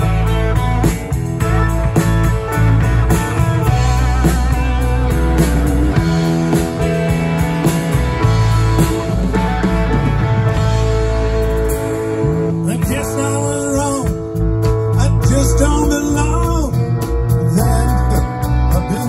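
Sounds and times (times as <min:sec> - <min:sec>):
drum kit: 0:00.0 - 0:19.0
electric guitar lead: 0:00.0 - 0:19.0.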